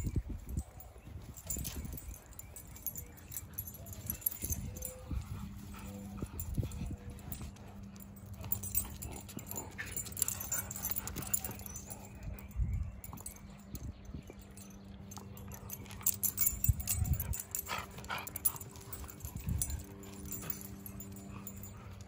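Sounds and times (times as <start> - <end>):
dogs playing: 0.3 - 22.0.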